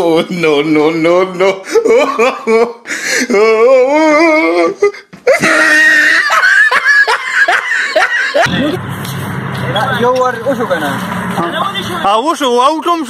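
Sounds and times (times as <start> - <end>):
loud laughter: 1.2 - 8.8.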